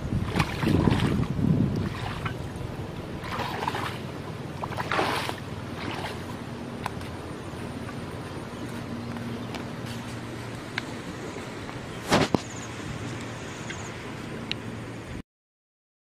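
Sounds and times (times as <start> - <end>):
water splashing in a ditch: 0.0 - 7.2, 12.0 - 13.4
wind buffeting microphone: 0.0 - 15.2.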